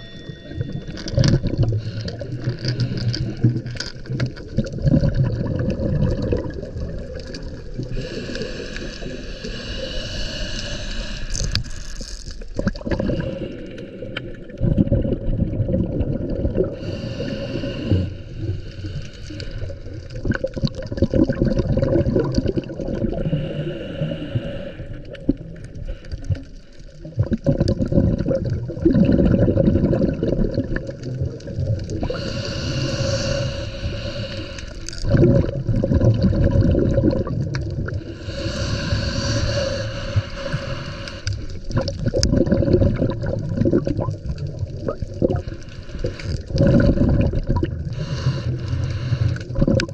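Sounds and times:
gurgle of exhaled bubbles: 0:00.0 - 0:49.9
regulator hissing inhale: 0:01.7 - 0:03.8, 0:07.8 - 0:12.2, 0:13.0 - 0:14.5, 0:16.8 - 0:20.0, 0:23.2 - 0:26.9, 0:32.0 - 0:35.0, 0:38.0 - 0:41.8, 0:45.4 - 0:47.0, 0:47.9 - 0:49.6.

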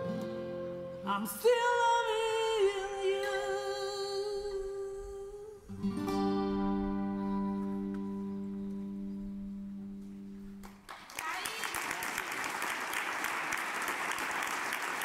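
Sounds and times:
acoustic guitar chord strummed: 0:00.0 - 0:04.9, 0:05.7 - 0:10.6.

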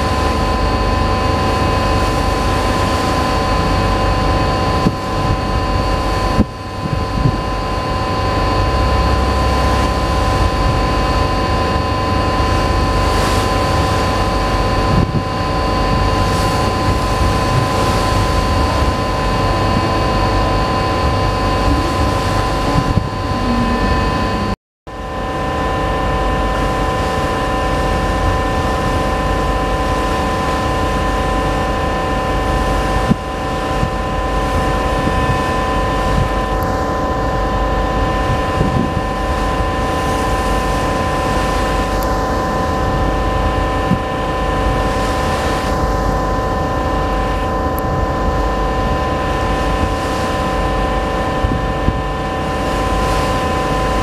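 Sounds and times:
rushing water: 0:00.0 - 0:24.6
wind on microphone: 0:00.0 - 0:24.6, 0:25.3 - 0:54.0
ship engines droning: 0:00.0 - 0:54.0.

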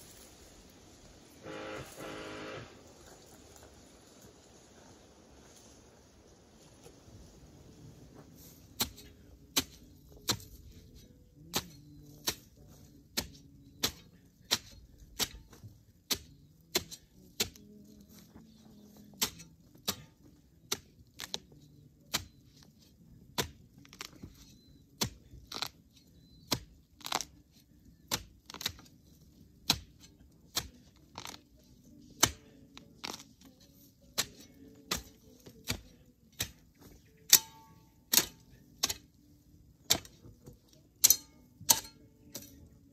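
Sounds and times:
faint background music: 0:00.0 - 0:42.9
digging tool striking stone: 0:08.8 - 0:17.7, 0:19.2 - 0:21.5, 0:22.1 - 0:22.7, 0:23.3 - 0:27.4, 0:28.1 - 0:28.9, 0:29.6 - 0:31.4, 0:32.1 - 0:33.5, 0:34.1 - 0:39.2, 0:39.8 - 0:42.7.

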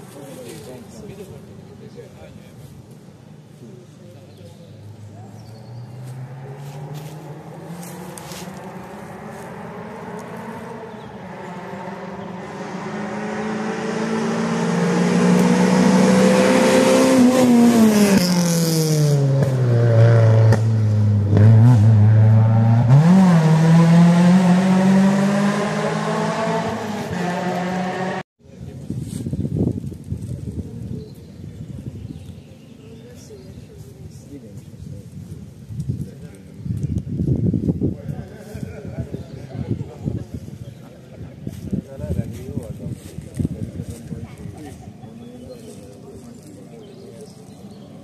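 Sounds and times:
rally car engine revving: 0:05.2 - 0:28.2.

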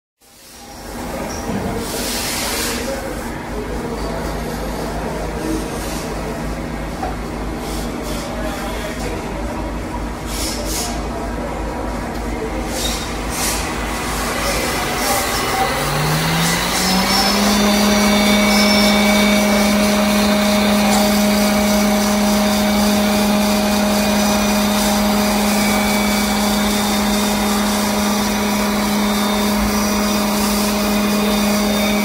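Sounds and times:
drilling spindle running: 0:12.6 - 0:32.0.

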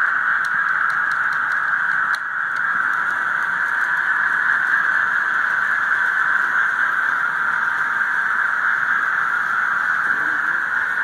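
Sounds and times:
light irregular ticks: 0:00.1 - 0:08.2
steam locomotive hiss from speaker: 0:03.5 - 0:11.0.

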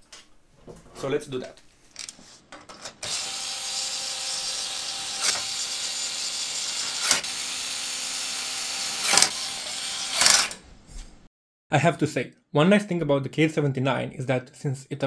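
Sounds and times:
electric screwdriver running: 0:03.0 - 0:10.6.

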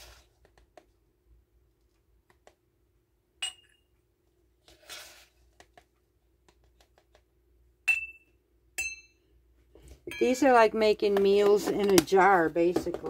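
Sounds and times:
flour scooping rustle: 0:00.0 - 0:00.3, 0:04.6 - 0:05.5.

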